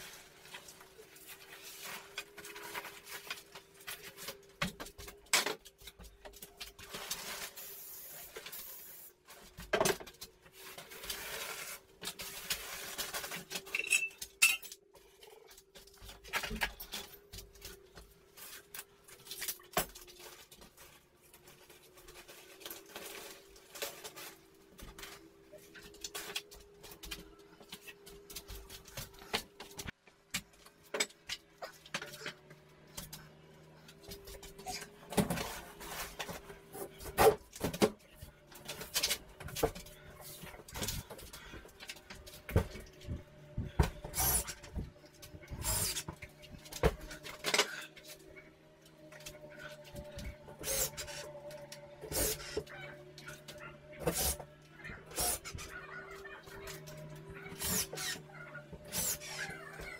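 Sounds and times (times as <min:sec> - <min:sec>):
hand tool scraping: 0:42.4 - 0:48.2, 0:50.5 - 0:52.6.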